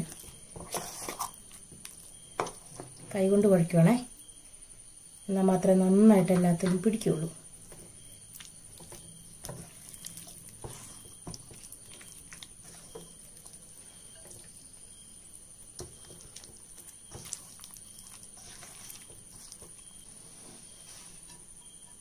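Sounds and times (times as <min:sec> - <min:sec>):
wet squelching of kneaded meat: 0:07.6 - 0:21.2.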